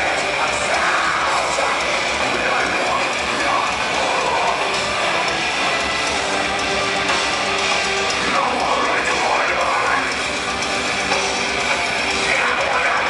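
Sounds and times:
heavy metal band playing live: 0.0s - 13.0s.

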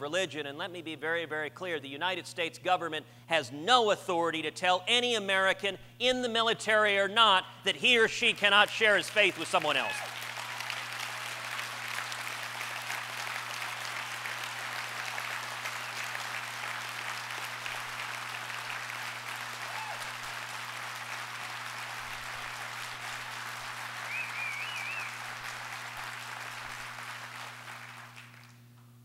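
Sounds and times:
audience applauding: 8.4s - 28.6s
high call from crowd: 19.4s - 20.6s, 23.9s - 25.4s.

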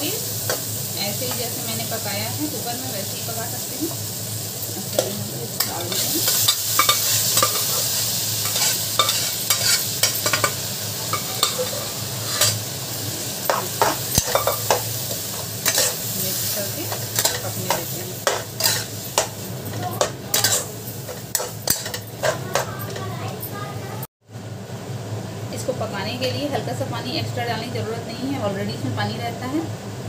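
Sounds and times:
vegetables sizzling in a pan: 0.0s - 30.0s
metal spatula scraping a pan: 4.9s - 12.7s, 13.5s - 23.0s.

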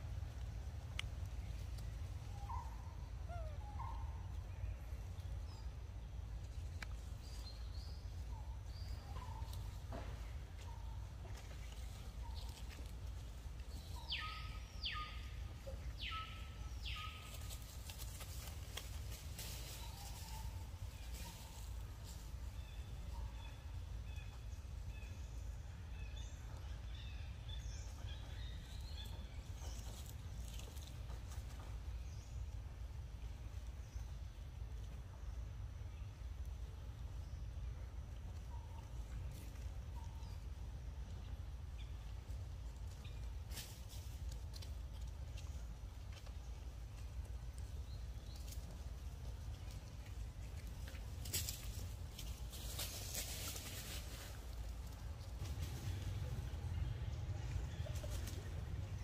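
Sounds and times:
steady low rumble: 0.0s - 59.0s
faint clicks: 0.3s - 1.9s
low rumble: 54.0s - 59.0s.

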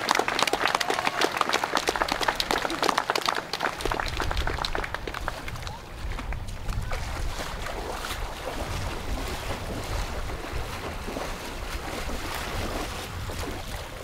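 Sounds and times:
water splashing: 1.9s - 14.0s
wind on microphone: 3.8s - 14.0s.

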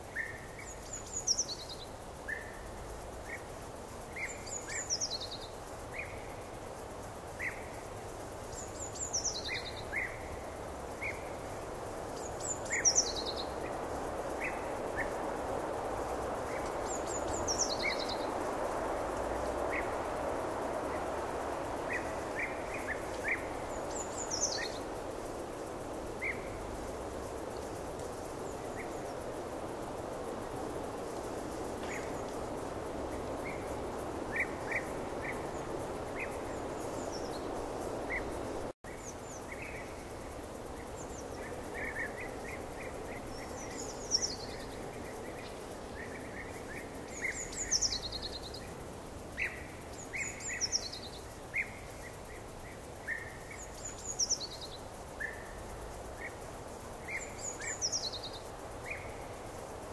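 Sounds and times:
small birds chirping: 3.2s - 59.9s
steady rushing noise: 9.6s - 38.8s.

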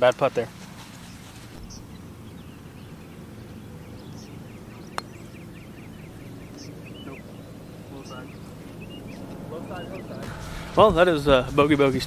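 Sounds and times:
birds chirping: 0.0s - 12.0s
putter striking golf ball: 4.8s - 5.4s.

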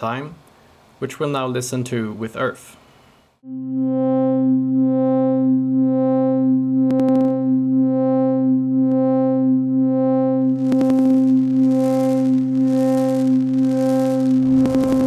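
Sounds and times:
low synthesizer tone: 3.4s - 15.0s
sizzling noise layer: 3.4s - 15.0s.

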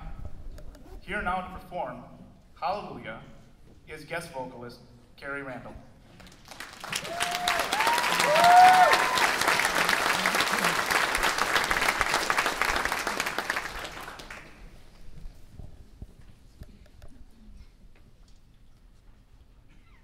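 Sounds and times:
audience applauding: 6.2s - 14.7s
short cheers: 6.9s - 10.9s.

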